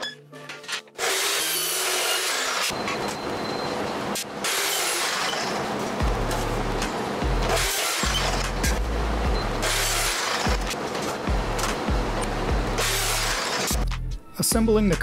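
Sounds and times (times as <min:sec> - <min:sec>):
abrasive saw grinding steel: 0:01.0 - 0:02.8, 0:04.4 - 0:05.6, 0:07.5 - 0:08.6, 0:09.6 - 0:10.5, 0:12.8 - 0:13.8
deep bass music: 0:06.0 - 0:15.0.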